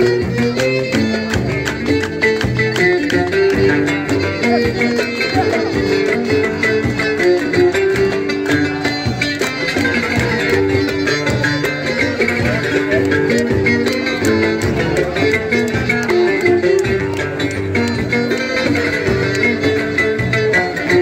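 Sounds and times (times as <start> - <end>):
hand drums beating: 0.0 - 21.0
oud: 0.0 - 21.0
violin melody: 0.0 - 21.0.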